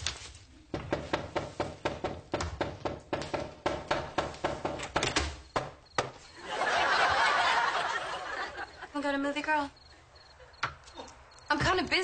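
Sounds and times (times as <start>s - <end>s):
rapid knocking on a door: 0.7s - 6.1s.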